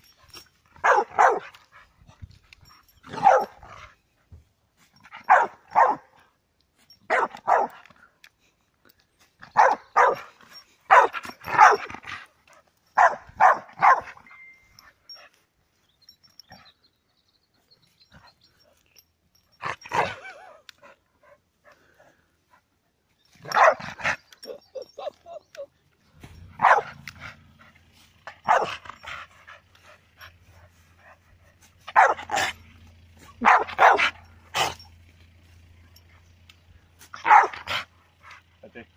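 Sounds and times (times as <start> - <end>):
dog barking excitedly: 0.7 - 1.6, 3.0 - 3.8, 5.1 - 6.2, 7.1 - 7.9, 9.4 - 12.3, 13.0 - 14.3, 19.6 - 20.6, 23.4 - 25.4, 26.5 - 27.4, 28.2 - 30.1, 31.8 - 34.8, 37.1 - 38.5.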